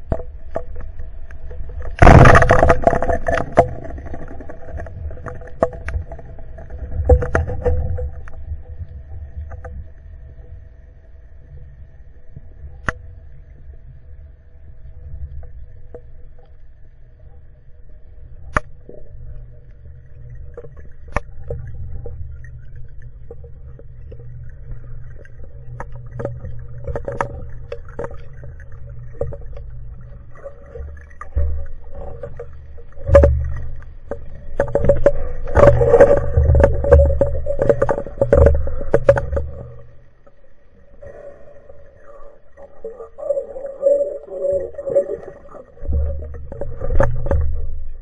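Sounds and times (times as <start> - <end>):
bubbling water: 0.0 - 9.7, 18.8 - 40.1, 41.0 - 48.0
faint steady hum: 0.0 - 48.0
low underwater rumble: 0.0 - 48.0.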